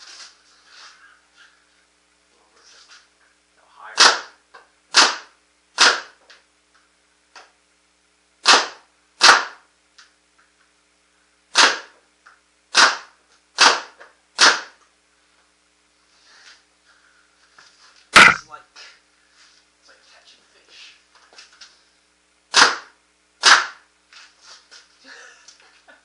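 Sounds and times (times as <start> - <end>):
paintball marker shots popping: 18.2 - 18.4.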